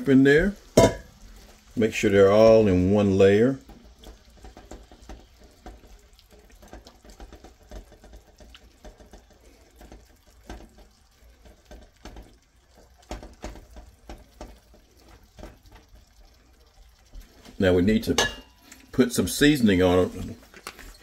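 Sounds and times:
shrimp sizzling in a frying pan: 0.0s - 21.0s
spatula scraping and tapping pan: 0.4s - 1.6s, 3.5s - 16.2s, 17.1s - 18.9s.

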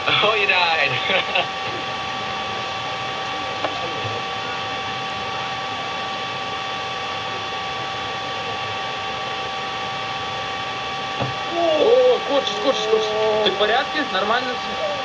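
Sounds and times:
faint high hums: 0.0s - 15.0s.

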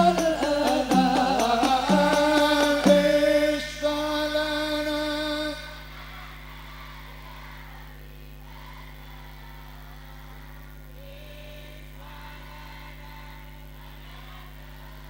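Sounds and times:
group of voices singing: 0.0s - 15.0s
steady low hum: 0.0s - 15.0s.

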